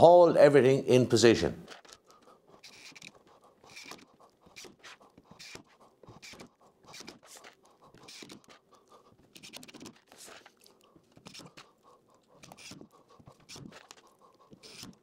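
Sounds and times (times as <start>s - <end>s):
hands scratching and rustling: 2.7s - 11.7s.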